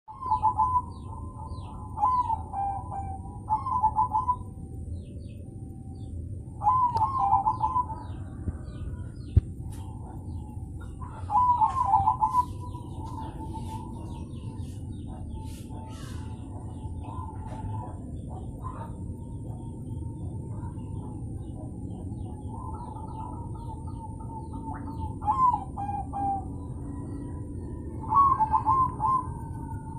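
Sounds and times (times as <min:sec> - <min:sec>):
doves cooing: 0:00.1 - 0:04.5, 0:06.6 - 0:29.9.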